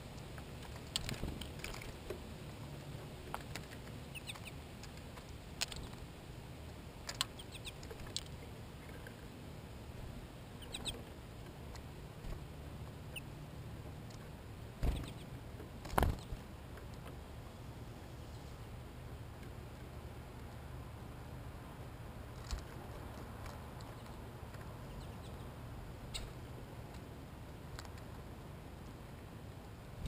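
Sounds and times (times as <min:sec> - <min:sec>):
birds pecking and cracking seed: 0:00.0 - 0:09.4, 0:10.5 - 0:13.2, 0:13.9 - 0:17.2, 0:22.3 - 0:25.5, 0:26.1 - 0:29.0
bird wings fluttering and landing: 0:15.8 - 0:16.4.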